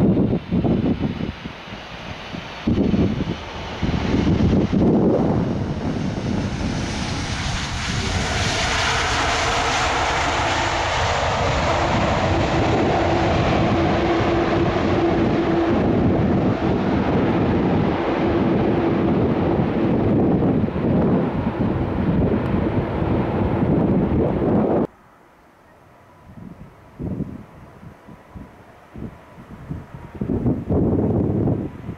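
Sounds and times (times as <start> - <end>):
jet engines roaring on landing: 0.0 - 24.9.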